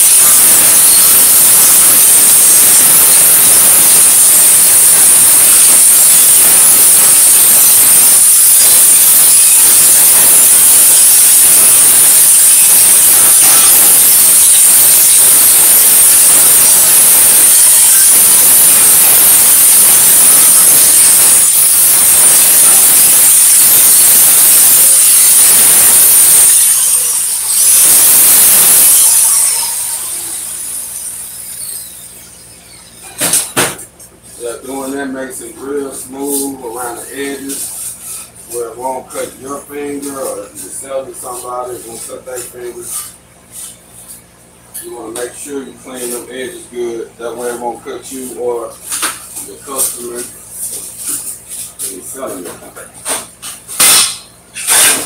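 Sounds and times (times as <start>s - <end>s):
angle grinder whining: 0.0s - 33.9s, 52.2s - 55.0s.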